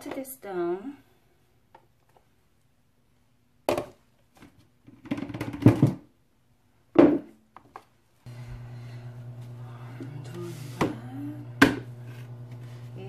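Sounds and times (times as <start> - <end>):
thuds and clatter of utensils: 4.9 - 6.0
plastic containers knocking: 4.9 - 6.1
low hum: 8.3 - 13.0.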